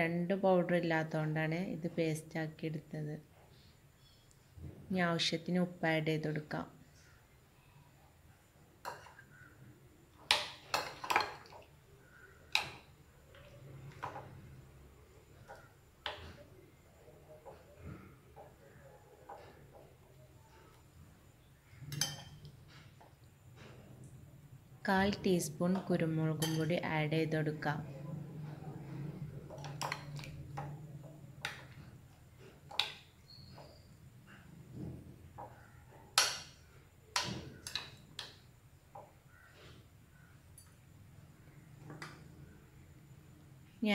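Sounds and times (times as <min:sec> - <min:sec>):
low steady hum: 0:00.0 - 0:43.9
spoon clinking against glass bowl: 0:21.9 - 0:22.5, 0:26.4 - 0:26.8.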